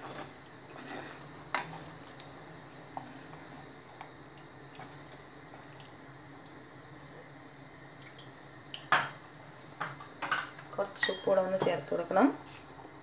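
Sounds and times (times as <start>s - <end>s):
wet squishing of stirring: 0.0s - 6.6s.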